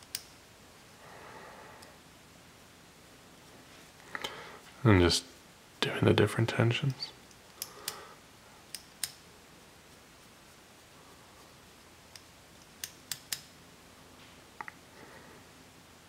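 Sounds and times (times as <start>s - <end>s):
small sharp metal clicks: 0.0s - 0.4s, 8.7s - 9.2s, 12.1s - 13.6s.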